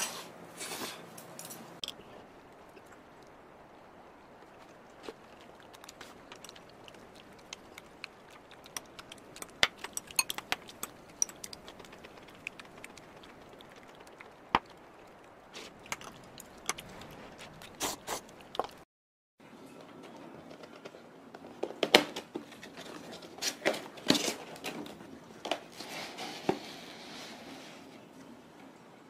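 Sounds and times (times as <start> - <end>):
metal spoon clinking against bowl: 9.4 - 11.6.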